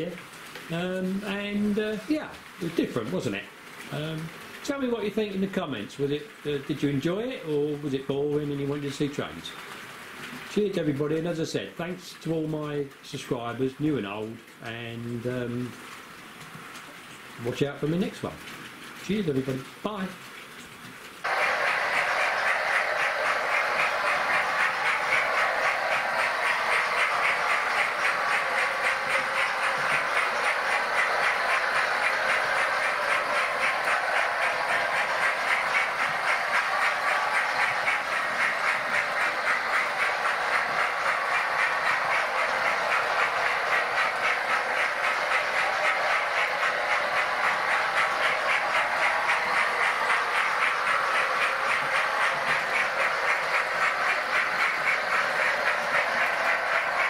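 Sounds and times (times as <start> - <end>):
wheels clicking over track: 21.2 - 57.0
model train motors whirring: 21.3 - 57.0.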